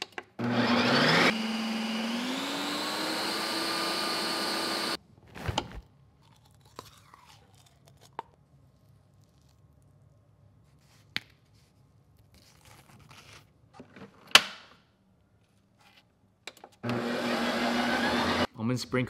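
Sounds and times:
ice cream maker motor humming: 0:00.4 - 0:05.0, 0:16.8 - 0:18.5.

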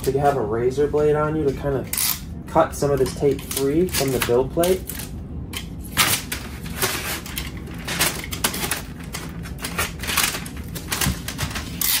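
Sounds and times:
packing tape tearing and crackling: 0:01.8 - 0:02.3, 0:02.9 - 0:12.0.

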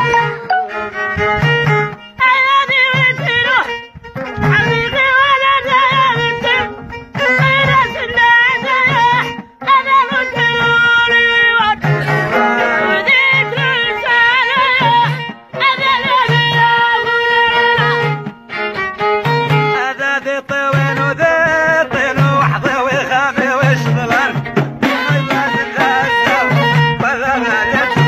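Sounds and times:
person singing: 0:00.0 - 0:01.2, 0:02.2 - 0:18.3, 0:19.3 - 0:28.0
violin melody: 0:00.0 - 0:21.8.

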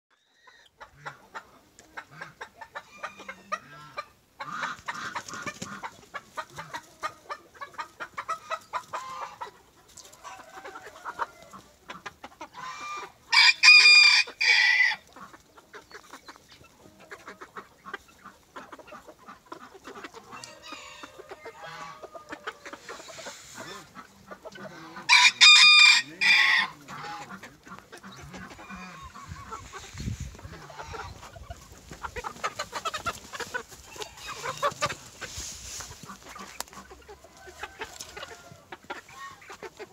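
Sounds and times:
chickens clucking and chattering: 0:00.1 - 0:39.9
rooster crowing: 0:13.3 - 0:15.0, 0:25.1 - 0:26.8.

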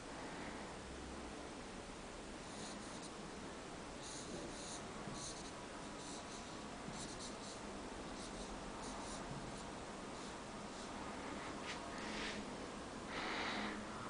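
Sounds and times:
felt-tip marker scratching on paper: 0:04.0 - 0:07.6, 0:08.2 - 0:10.9.

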